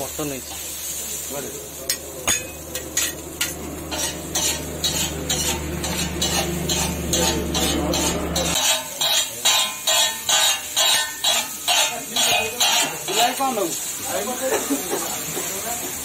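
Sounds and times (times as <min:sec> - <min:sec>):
light sizzle: 0:00.0 - 0:16.0
spatulas scraping metal griddle: 0:01.8 - 0:13.8.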